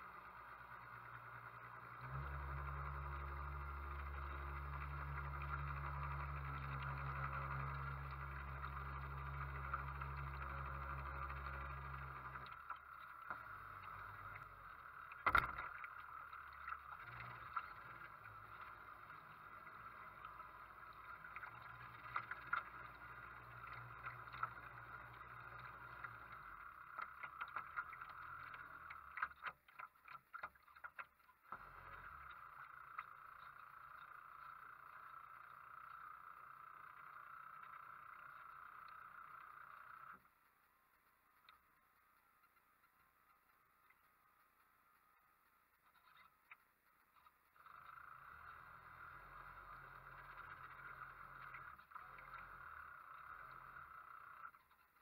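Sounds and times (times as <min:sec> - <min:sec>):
small splashes: 0:00.9 - 0:34.5.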